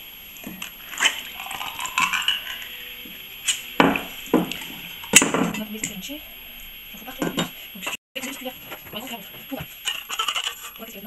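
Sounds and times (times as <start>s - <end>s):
tin lid scraping: 0.4s - 5.2s, 9.8s - 10.9s.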